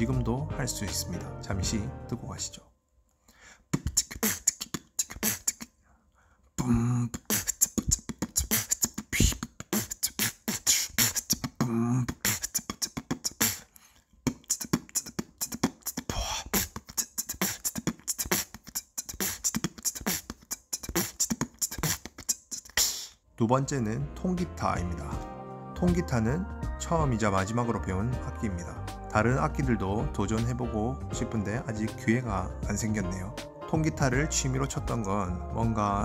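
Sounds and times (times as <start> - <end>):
person beatboxing: 3.7 - 5.7, 6.6 - 23.2.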